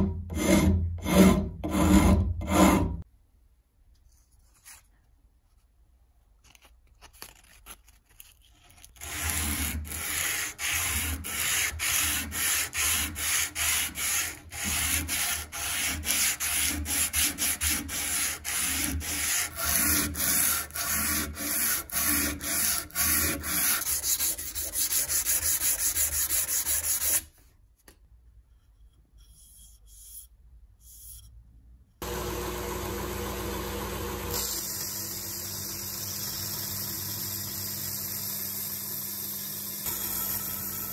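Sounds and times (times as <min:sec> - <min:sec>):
sandpaper rubbing on wood: 0:09.0 - 0:27.3
belt grinder running: 0:32.0 - 0:40.9.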